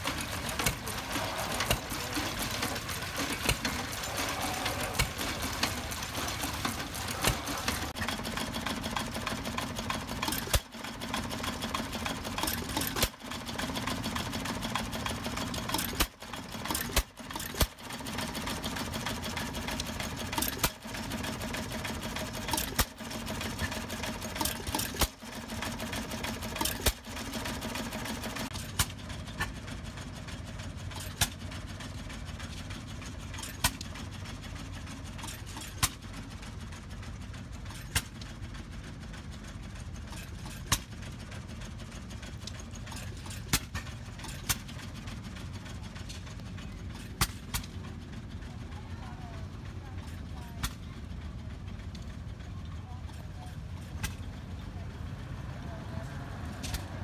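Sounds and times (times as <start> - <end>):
steady mechanical hum: 0.0 - 57.0
stationary engine exhaust pops: 42.2 - 45.0.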